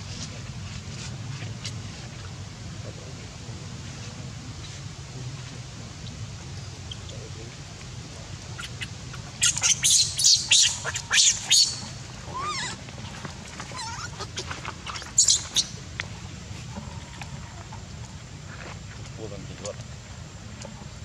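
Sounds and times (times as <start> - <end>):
baby monkey squealing: 8.6 - 12.8, 13.7 - 15.8
baby monkey whimpering: 9.4 - 12.8, 13.7 - 15.6.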